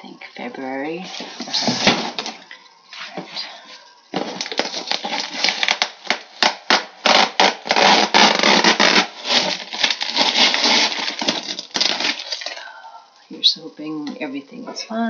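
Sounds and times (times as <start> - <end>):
plastic pouch peeling and tearing: 4.4 - 12.6.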